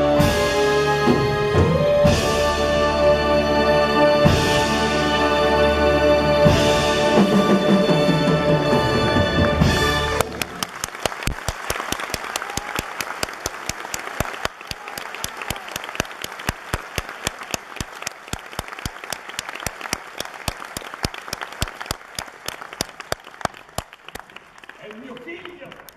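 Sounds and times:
audience applauding: 8.8 - 25.9.

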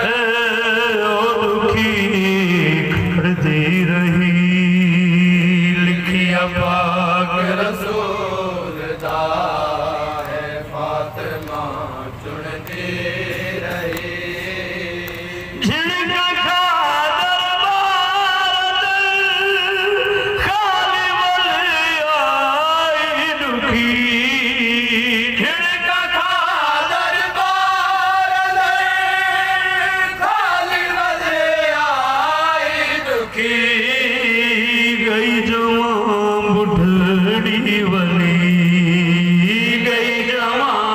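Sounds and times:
man singing into microphone: 0.0 - 10.8, 13.0 - 40.9
man chanting through pa: 9.5 - 26.9.

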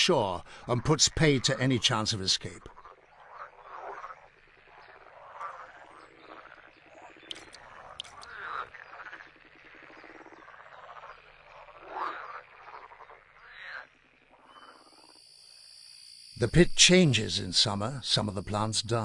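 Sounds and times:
frogs croaking: 0.0 - 19.0
short clicks: 7.3 - 8.4.

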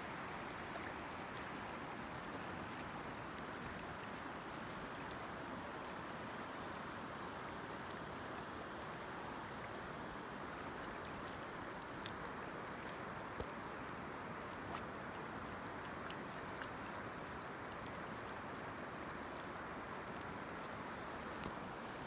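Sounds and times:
river flowing over cobbles: 0.0 - 22.0
faint clicks: 10.8 - 13.9.

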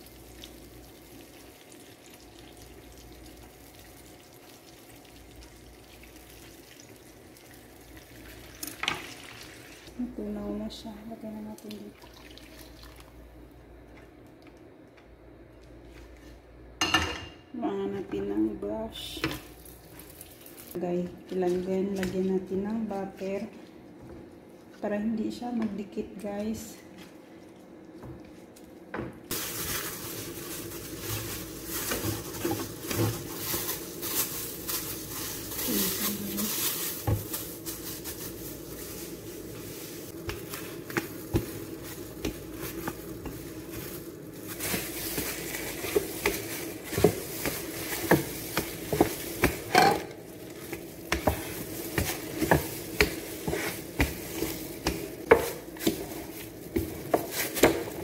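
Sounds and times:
steady background hum: 0.0 - 58.0
rolling pin rolling dough: 51.1 - 57.9.

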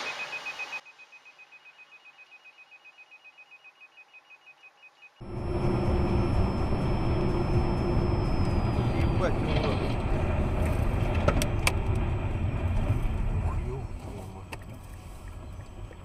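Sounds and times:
car engine and road noise inside car: 5.2 - 16.0
street noise: 5.2 - 16.0.

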